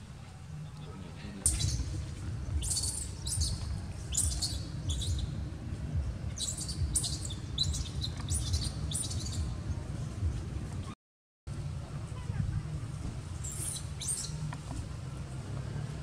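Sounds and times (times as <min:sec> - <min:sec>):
low rumble: 0:01.2 - 0:13.5
high-pitched chirping calls: 0:01.4 - 0:05.4, 0:06.2 - 0:09.6, 0:13.4 - 0:14.5.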